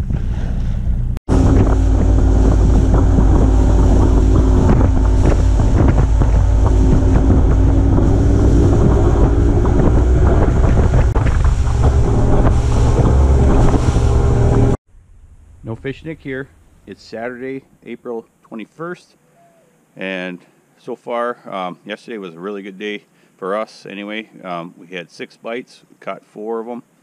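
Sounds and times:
motorboat engine running: 1.0s - 14.8s
wind buffeting microphone: 1.3s - 14.8s.

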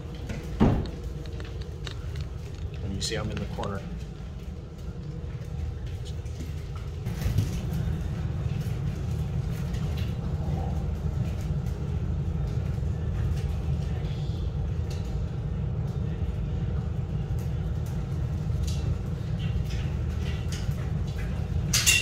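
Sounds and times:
low room rumble: 0.0s - 22.0s
puppies pattering on tiled floor: 0.0s - 22.0s.

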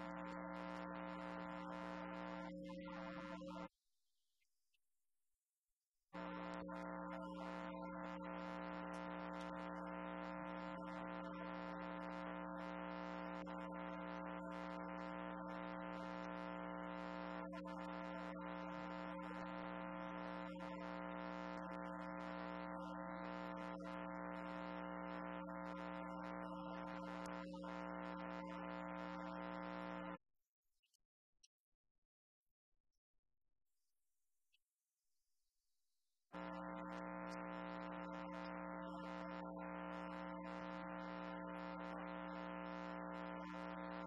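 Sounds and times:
electrical buzz: 6.2s - 30.1s.

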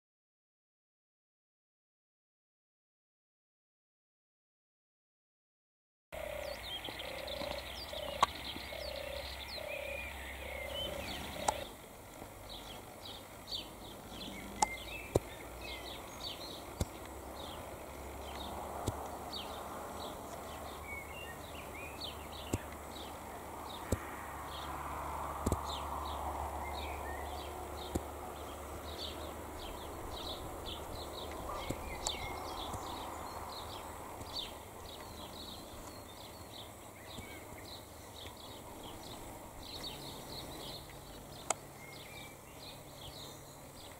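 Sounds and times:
high bird chirps: 6.2s - 11.7s, 29.0s - 38.4s
low hooting bird notes: 6.2s - 11.8s, 12.6s - 43.7s
sharp clicks: 11.4s - 11.7s, 14.6s - 15.3s, 18.3s - 19.2s, 25.4s - 25.8s.

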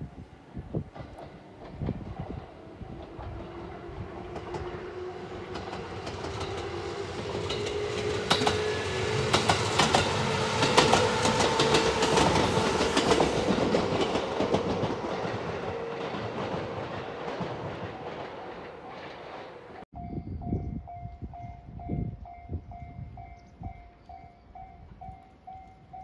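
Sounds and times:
train passing: 0.0s - 26.0s
wheels clicking over rail joints: 0.8s - 19.8s.

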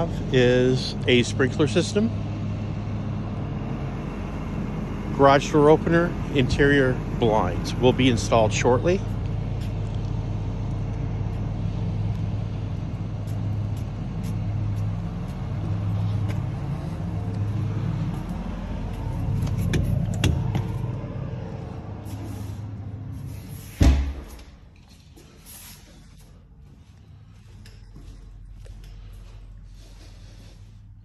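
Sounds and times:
low mechanical hum: 0.0s - 31.0s
front door shutting: 18.0s - 22.6s, 23.3s - 24.7s.

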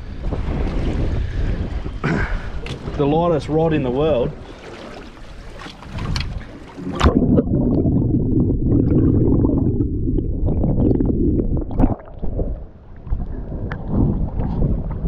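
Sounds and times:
underwater rushing and gurgling: 0.0s - 15.0s
water splash: 4.4s - 13.2s.

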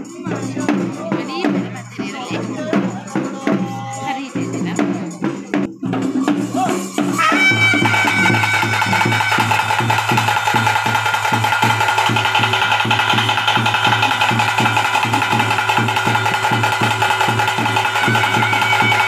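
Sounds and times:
regular drumbeat: 0.0s - 19.0s
wind instrument tones: 2.6s - 19.0s.

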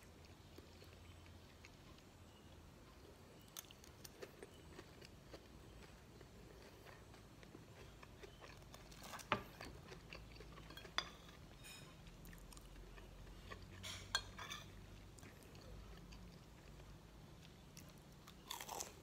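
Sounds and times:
cutlery clinking on ceramic plate: 10.6s - 12.1s, 13.7s - 14.8s.

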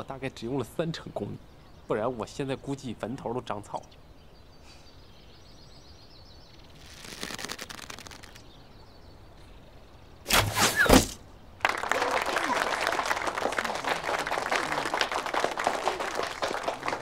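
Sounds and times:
arrow whooshing through air: 10.3s - 11.2s
applause: 11.6s - 17.0s.

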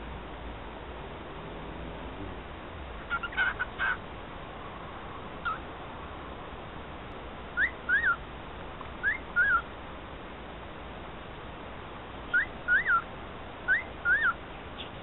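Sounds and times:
cockatiel whistling: 7.6s - 8.2s, 9.0s - 9.6s, 12.3s - 13.1s, 13.7s - 14.4s.

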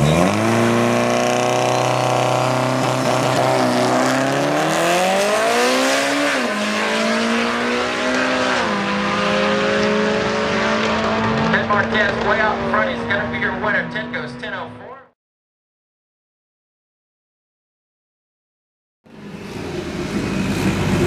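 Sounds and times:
car engine revving at full throttle: 0.0s - 14.8s, 19.1s - 21.0s.

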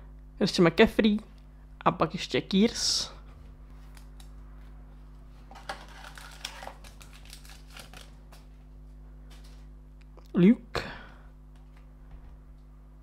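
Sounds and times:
wrapper crinkling: 5.4s - 8.6s.

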